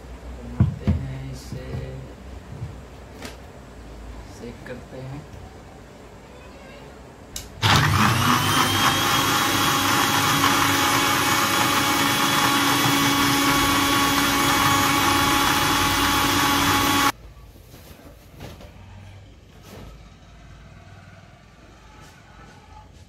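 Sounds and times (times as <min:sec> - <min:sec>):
blender motor running: 0:07.6 - 0:17.1.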